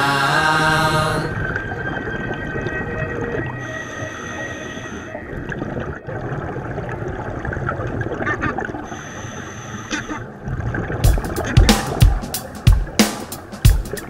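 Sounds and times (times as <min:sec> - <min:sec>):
scuba exhaust bubbling: 0:00.0 - 0:14.0
underwater rushing and gurgling: 0:00.0 - 0:14.0
heavy low thumps: 0:11.0 - 0:14.0.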